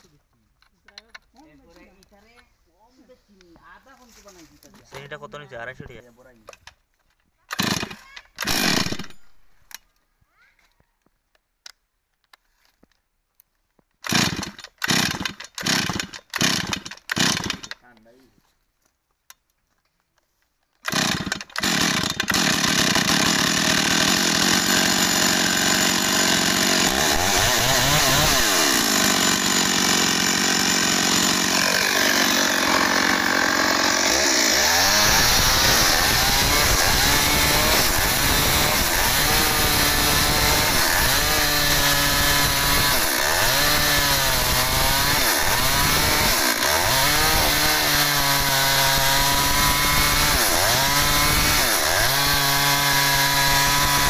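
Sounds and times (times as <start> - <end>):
chainsaw starting and revving: 7.5 - 9.4, 14.0 - 17.8, 20.8 - 54.0
chainsaw cutting into log: 7.5 - 9.6, 14.0 - 17.8, 20.8 - 54.0.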